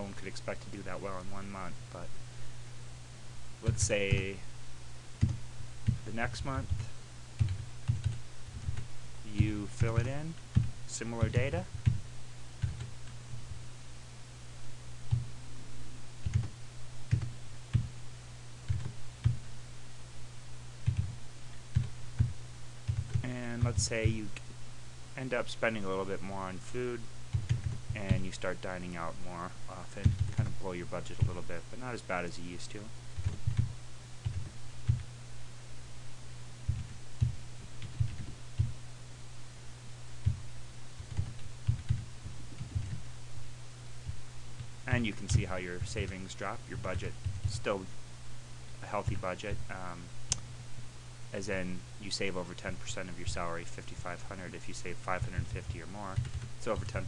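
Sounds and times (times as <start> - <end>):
steady low hum: 0.0 - 57.0
computer keyboard typing: 7.4 - 8.9, 12.6 - 13.2, 16.2 - 17.9, 18.7 - 19.4, 20.8 - 21.1, 21.7 - 22.3, 22.9 - 23.9, 27.3 - 28.2, 30.0 - 30.5, 33.2 - 35.0, 36.7 - 38.7, 41.0 - 43.0, 55.3 - 57.0.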